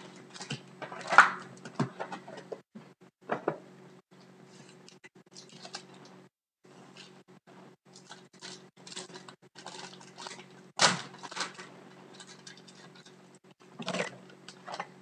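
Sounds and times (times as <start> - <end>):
foil wrapper crinkling and tearing: 8.0 - 13.2.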